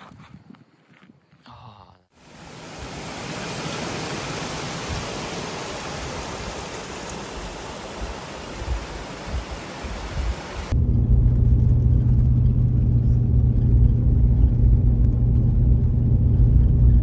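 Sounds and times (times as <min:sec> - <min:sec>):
creek cascading over rocks: 0:02.2 - 0:10.8.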